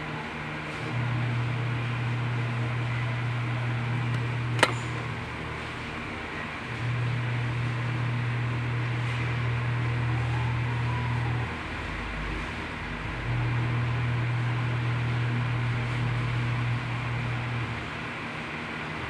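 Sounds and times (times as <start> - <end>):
sharp click: 4.1 - 5.0.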